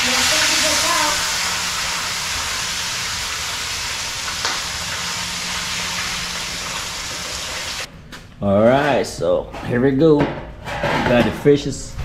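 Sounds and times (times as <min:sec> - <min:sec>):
fish sizzling in hot oil: 0:00.0 - 0:07.9.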